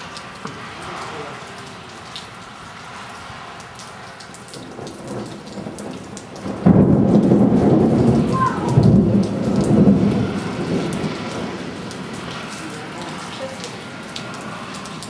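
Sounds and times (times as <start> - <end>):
heavy rain: 0.0 - 15.0
thunder rumbling: 4.5 - 15.0
loud thunder clap: 4.6 - 12.0.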